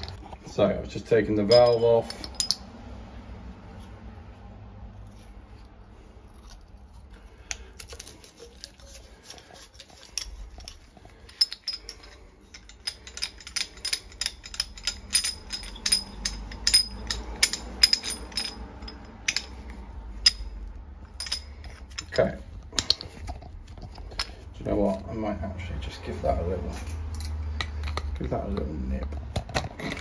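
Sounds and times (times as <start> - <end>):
metal pipe fittings clicking: 1.4 - 2.7, 6.4 - 24.5, 26.8 - 28.7.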